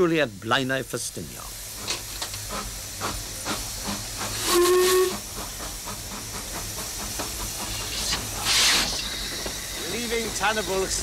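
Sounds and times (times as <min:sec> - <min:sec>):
steam hissing: 0:00.0 - 0:11.0
steam locomotive chuffing: 0:01.4 - 0:11.0
steam whistle blast: 0:04.4 - 0:05.2.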